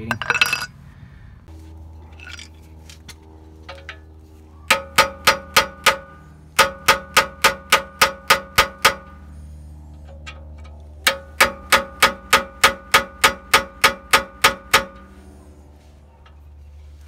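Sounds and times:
hammer striking metal: 4.7 - 9.2, 11.0 - 15.1.

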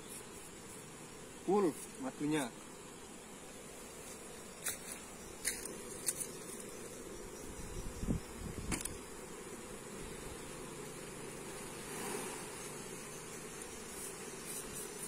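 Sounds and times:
honeybees buzzing: 0.0 - 15.0
knocks and clicks of hive frames: 8.5 - 9.1.

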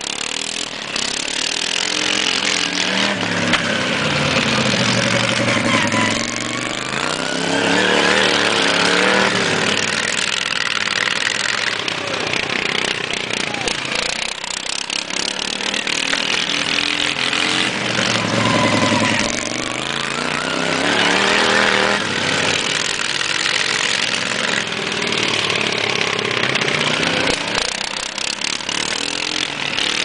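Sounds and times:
lawn mower engine revving: 0.0 - 30.0.

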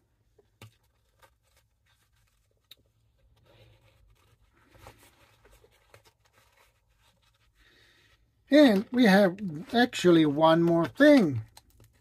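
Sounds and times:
soft scratchy rustling: 0.8 - 12.0.

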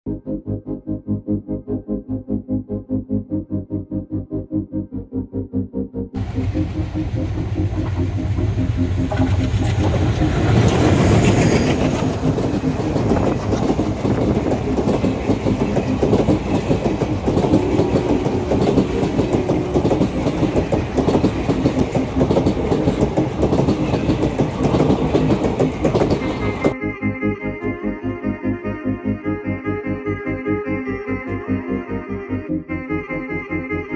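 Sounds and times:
train wheels clattering on rails: 6.2 - 26.8.

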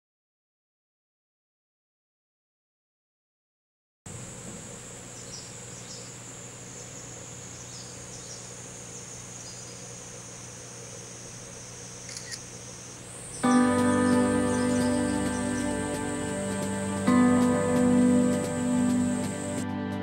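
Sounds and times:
cicadas droning: 4.1 - 20.0
low steady hum: 4.1 - 20.0.

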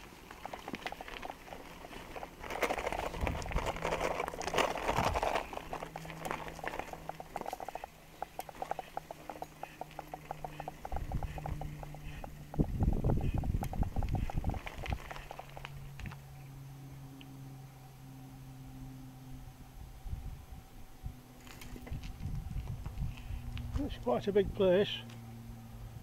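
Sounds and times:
rapid small ticks: 0.0 - 16.2
bicycle tyres on gravel: 0.0 - 16.3, 21.4 - 25.0.

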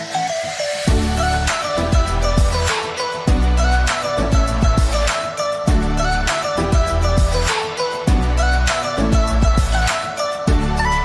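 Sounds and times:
melody of held notes: 0.0 - 11.0
deep bass thumps: 0.9 - 1.2, 9.1 - 9.8.

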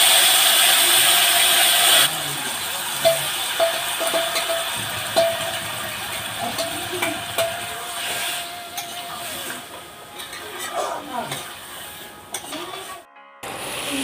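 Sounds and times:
frying hiss: 0.0 - 14.0
steel bowl ringing: 2.1 - 10.7.

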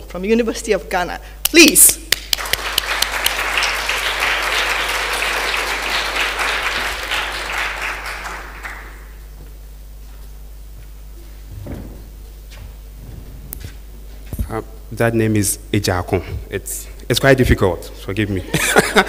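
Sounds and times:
audience applauding: 2.1 - 9.2.

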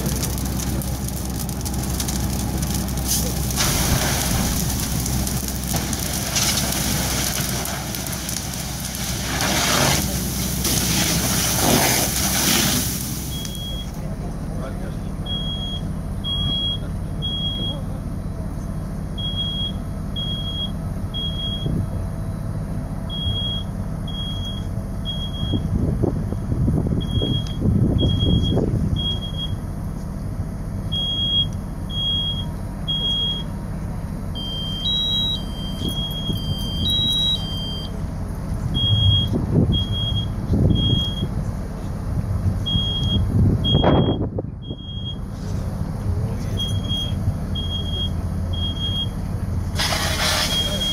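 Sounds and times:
low engine rumble: 0.0 - 50.9
smoke alarm beeping: 13.3 - 14.0, 19.2 - 21.7, 23.1 - 25.6, 27.0 - 29.6, 30.9 - 33.5, 34.4 - 38.0, 38.8 - 41.3, 42.7 - 45.2, 46.6 - 49.2, 50.4 - 50.9
second alarm higher beep: 34.4 - 38.0, 42.7 - 45.2.

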